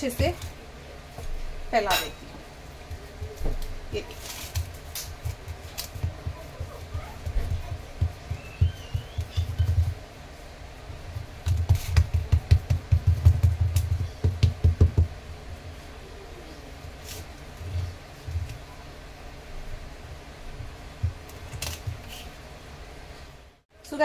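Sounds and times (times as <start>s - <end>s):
hands patting dough: 2.7s - 10.2s, 11.0s - 15.2s, 20.6s - 22.4s.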